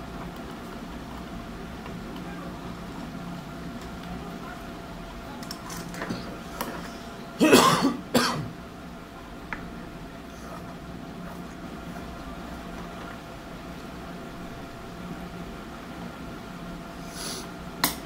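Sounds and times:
steady low hum: 0:00.0 - 0:18.0
person coughing: 0:07.4 - 0:08.5.

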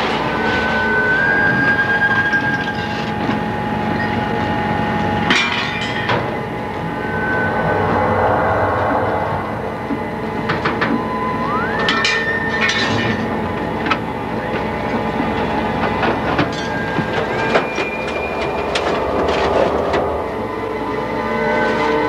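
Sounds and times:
machine whine: 0:00.0 - 0:22.0
machinery noise: 0:00.0 - 0:22.0
metal clanks and knocks: 0:05.3 - 0:06.5, 0:15.3 - 0:20.0.

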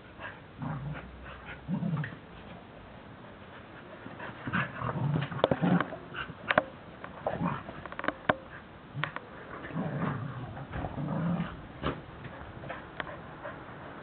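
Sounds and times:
dogs growling: 0:00.6 - 0:02.2, 0:04.2 - 0:06.6, 0:07.2 - 0:07.8, 0:08.9 - 0:14.0.

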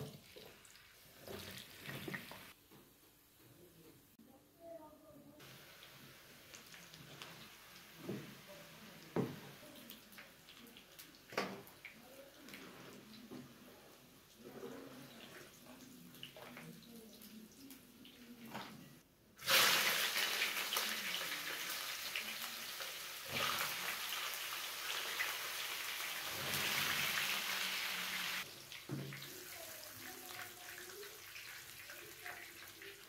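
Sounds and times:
vegetables sizzling in oil: 0:05.4 - 0:11.8, 0:19.4 - 0:33.0.

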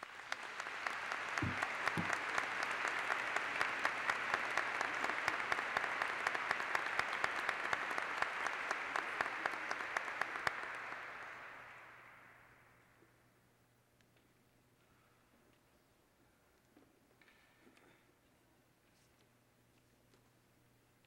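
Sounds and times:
audience applauding: 0:00.0 - 0:12.6.

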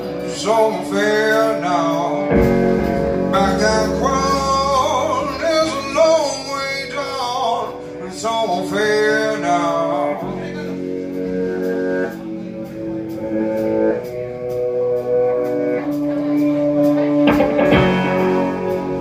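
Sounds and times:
man singing: 0:00.0 - 0:11.0
drum kit: 0:00.0 - 0:19.0
electric guitar: 0:00.0 - 0:19.0.

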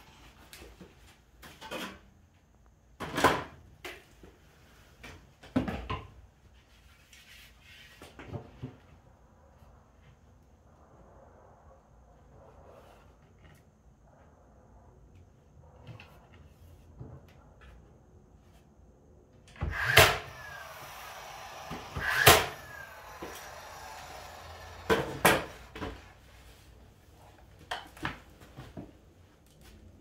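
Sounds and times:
nail gun firing: 0:19.6 - 0:25.8.

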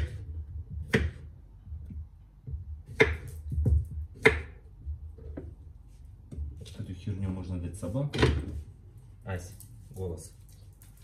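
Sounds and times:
knife chopping on wooden board: 0:00.0 - 0:01.3, 0:01.9 - 0:04.6.

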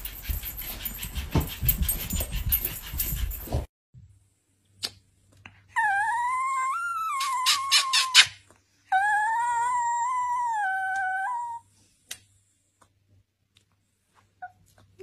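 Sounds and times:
small dog howling: 0:05.8 - 0:08.2, 0:08.9 - 0:11.6.

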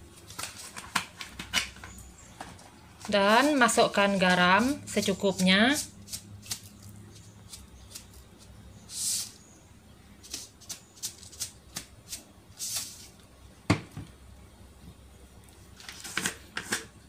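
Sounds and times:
short hissing rustles: 0:08.8 - 0:09.5, 0:12.6 - 0:13.2.

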